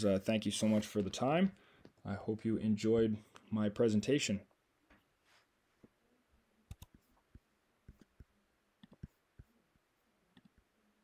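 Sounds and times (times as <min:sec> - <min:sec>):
faint computer clicks: 0:06.7 - 0:07.0.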